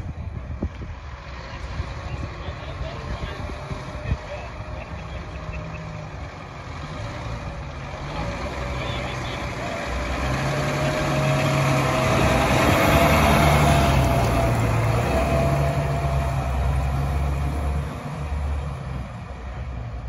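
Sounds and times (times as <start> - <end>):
diesel truck driving past: 0.0 - 20.0.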